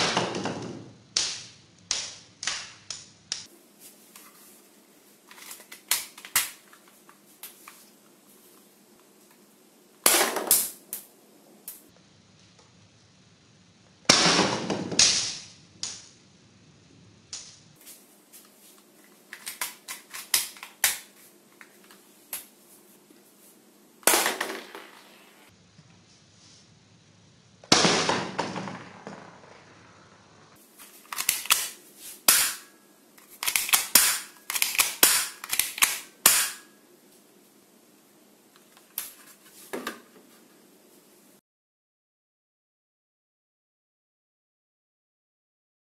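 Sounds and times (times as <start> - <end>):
toy pistol snaps and clicks: 31.1 - 31.8, 33.4 - 36.6.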